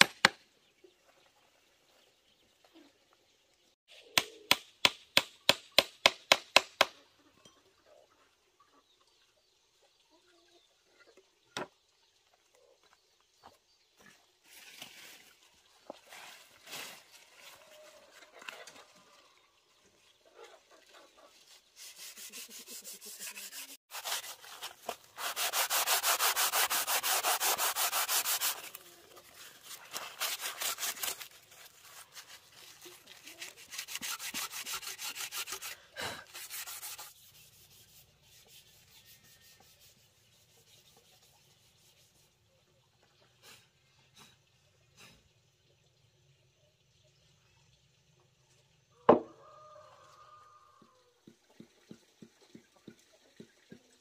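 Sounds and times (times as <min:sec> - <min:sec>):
leaf scrubbing wood: 0:21.4 - 0:42.3.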